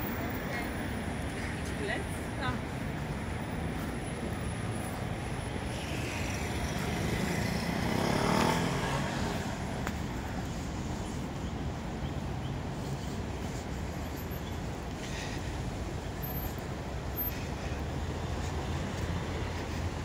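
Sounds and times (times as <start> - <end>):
city traffic hum: 0.0 - 20.0
vehicle passing close: 5.8 - 9.7.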